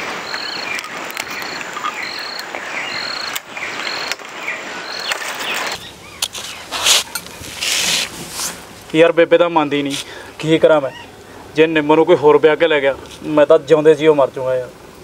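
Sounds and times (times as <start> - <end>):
steady hiss: 0.0 - 15.0
short high chirp: 0.2 - 5.8
falling whistled notes: 0.2 - 5.9.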